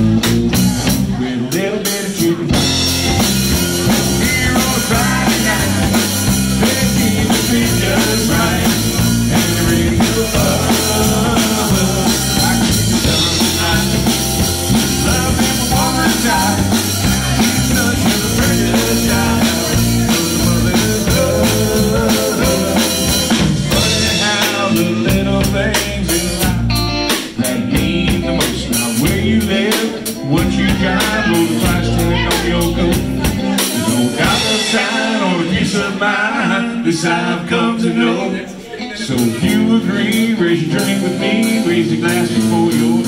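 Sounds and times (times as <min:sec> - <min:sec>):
drum kit steady beat: 0:00.0 - 0:36.0, 0:39.1 - 0:43.0
electric bass: 0:00.0 - 0:38.2, 0:39.0 - 0:43.0
electric guitar: 0:00.0 - 0:43.0.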